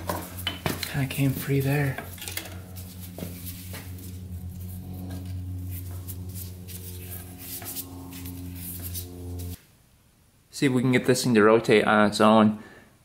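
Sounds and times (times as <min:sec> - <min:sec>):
steady low hum: 0:00.0 - 0:10.3
metal tools clicking and scraping: 0:02.0 - 0:02.6.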